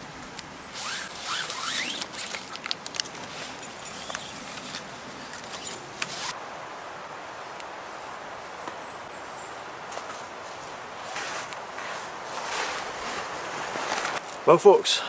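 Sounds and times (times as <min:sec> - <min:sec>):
cord rustling: 0:00.8 - 0:06.4.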